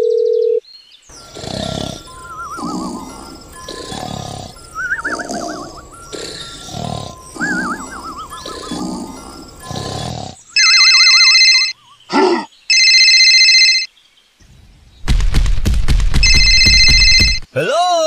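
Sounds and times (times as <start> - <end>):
cartoon snoring with whistle: 1.2 - 10.4
phone ringtone ringing: 10.6 - 11.8, 12.7 - 13.9, 16.2 - 17.4
short grunt: 12.1 - 12.5.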